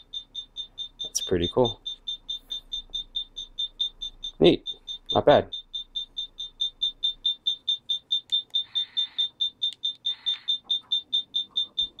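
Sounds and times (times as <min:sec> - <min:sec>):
high-pitched electronic beeps: 0:00.0 - 0:12.0.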